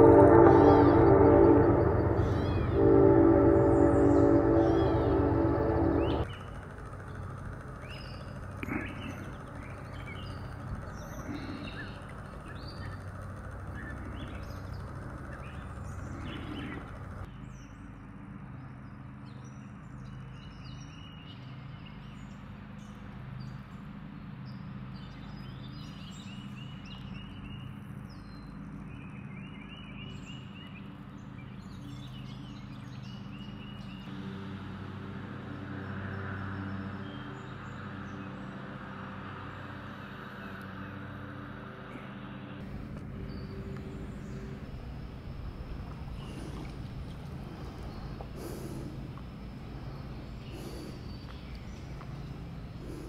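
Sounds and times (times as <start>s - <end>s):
rushing rumble: 0.0s - 17.3s, 42.6s - 53.0s
bird trill: 0.0s - 17.7s
birds chirping: 0.0s - 18.0s, 18.9s - 53.0s
low engine-like hum: 0.0s - 53.0s.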